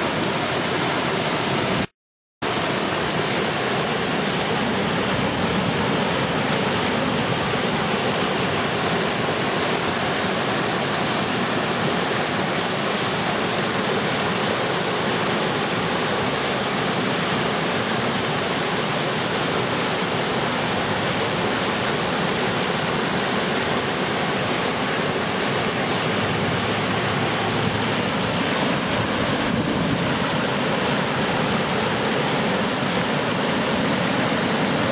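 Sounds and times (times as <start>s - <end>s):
river rapids roaring: 0.0s - 34.9s.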